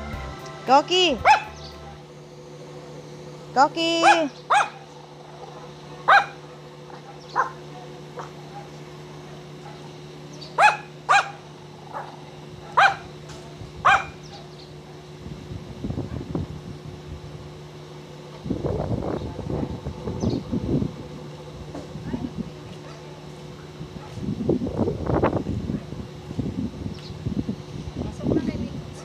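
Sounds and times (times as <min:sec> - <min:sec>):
rough low noise: 0:00.0 - 0:03.6, 0:18.2 - 0:23.5
small dog yapping: 0:01.2 - 0:01.6, 0:04.0 - 0:07.6, 0:10.6 - 0:13.1, 0:13.8 - 0:14.5.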